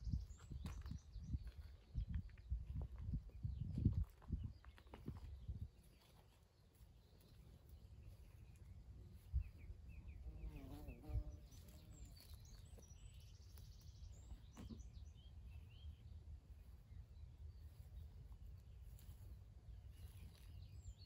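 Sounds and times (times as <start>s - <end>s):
birds chirping: 0.0s - 21.0s
footsteps on grass: 17.5s - 21.0s.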